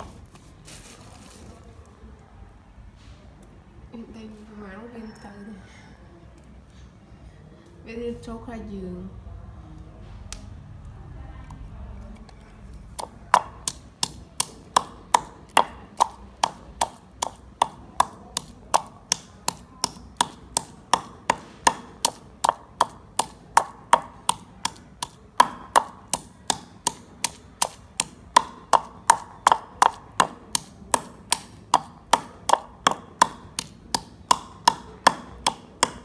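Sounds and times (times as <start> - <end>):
wooden pestle pounding in mortar: 12.9 - 36.0.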